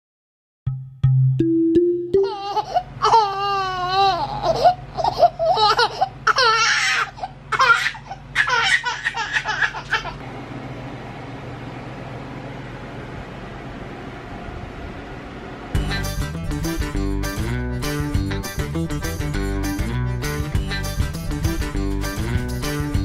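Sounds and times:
low room hum: 2.1s - 16.0s
high-pitched laughter and giggling: 2.2s - 10.2s.

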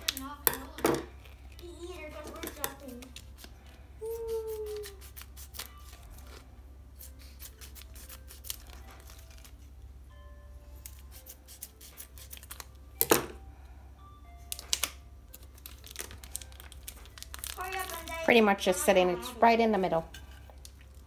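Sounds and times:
plastic packaging crinkling: 7.4s - 9.7s, 14.5s - 18.7s.

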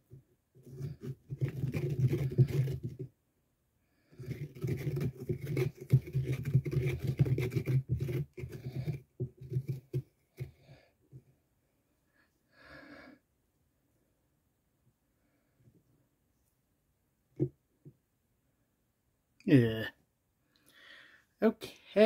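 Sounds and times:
person breathing heavily rasping: 12.5s - 13.2s, 20.6s - 21.3s.

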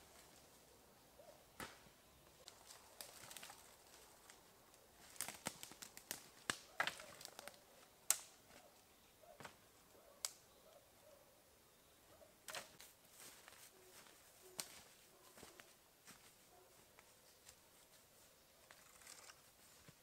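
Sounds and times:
rustling in dry leaves: 2.3s - 7.6s
dry sticks cracking and snapping: 2.4s - 8.7s, 10.2s - 10.4s, 12.5s - 12.9s.

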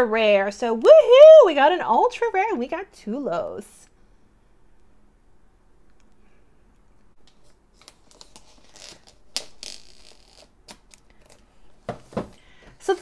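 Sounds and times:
packaging rustling: 7.3s - 11.5s.

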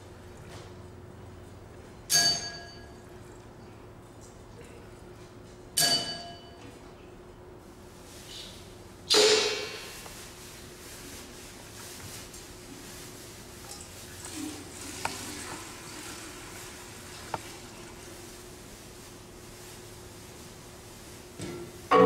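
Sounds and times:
bright percussion clangs: 2.1s - 3.0s, 5.8s - 6.6s.

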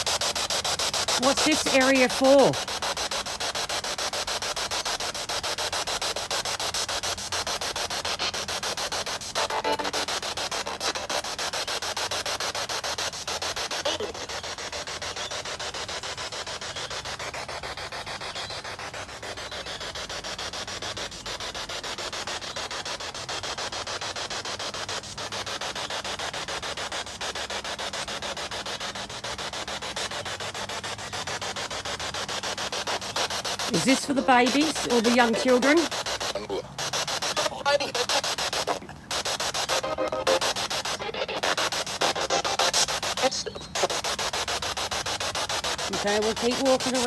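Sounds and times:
pulsing radio static: 0.8s - 2.8s, 9.1s - 11.8s, 13.6s - 15.3s, 32.9s - 44.9s, 45.8s - 47.0s.

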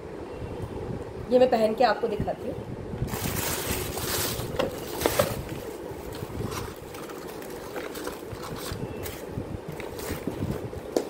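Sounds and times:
tissue paper crinkling: 3.1s - 10.6s
cardboard box handling: 3.2s - 10.6s.

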